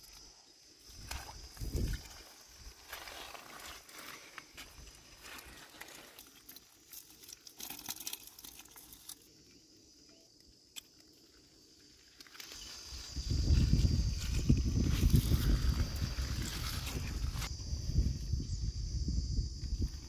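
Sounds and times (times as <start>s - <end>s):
pebbles crunching and clicking: 5.3s - 9.3s.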